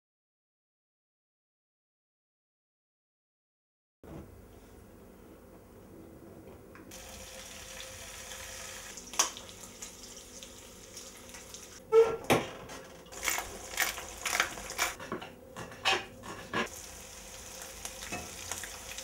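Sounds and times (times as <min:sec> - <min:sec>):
eggs sizzling in a pan: 0:06.9 - 0:11.8, 0:13.1 - 0:15.0, 0:16.3 - 0:19.0.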